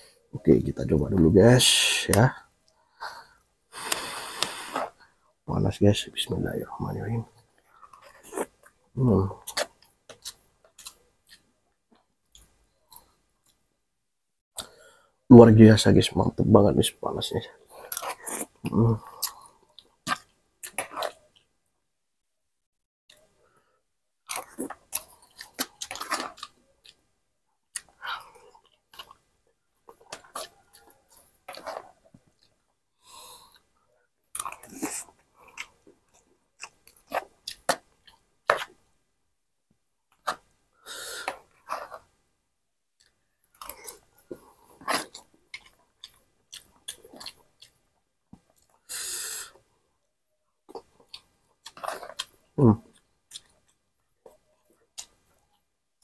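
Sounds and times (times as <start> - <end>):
person chewing food: 2.4 - 5.2, 7.4 - 13.7, 17.6 - 21.6, 24.2 - 39.0, 40.1 - 42.3, 43.0 - 49.9, 50.6 - 56.0.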